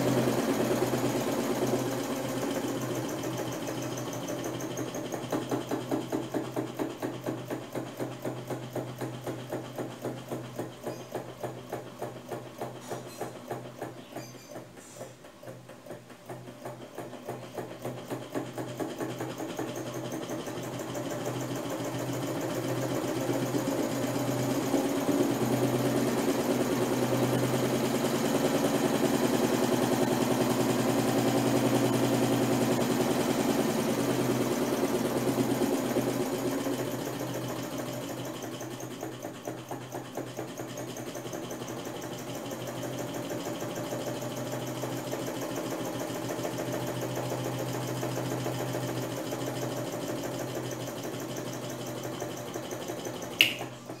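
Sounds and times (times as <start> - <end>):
sewing machine motor humming and rattling: 0.0 - 54.0.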